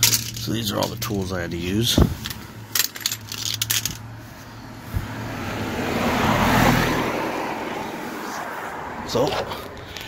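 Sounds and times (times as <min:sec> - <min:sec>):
metal tools clinking on gravel: 0:00.0 - 0:04.2.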